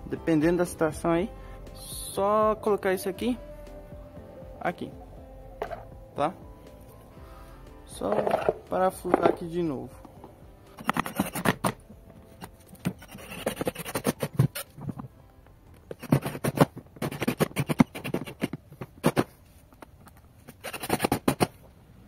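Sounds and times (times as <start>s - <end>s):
cordless drill driving screws: 20.5s - 21.4s.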